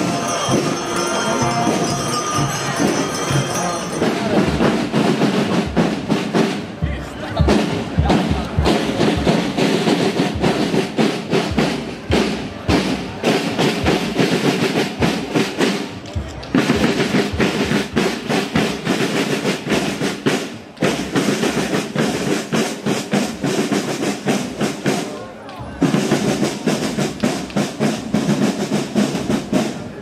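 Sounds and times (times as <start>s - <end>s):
snare drums rattling: 0.0s - 25.2s, 25.8s - 30.0s
bass drum: 4.2s - 15.4s.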